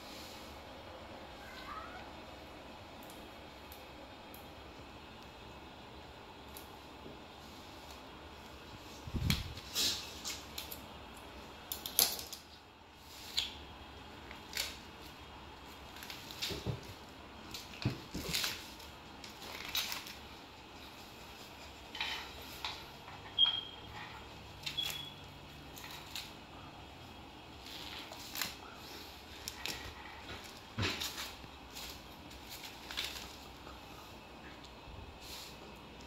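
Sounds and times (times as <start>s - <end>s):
plastic wrap crinkling: 14.2s - 20.3s, 27.5s - 33.6s.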